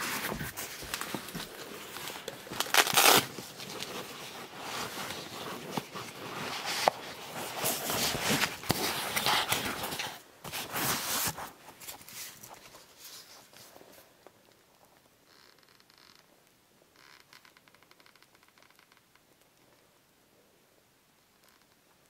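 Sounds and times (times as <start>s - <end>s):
rustling of fabric or plastic: 0.0s - 14.3s.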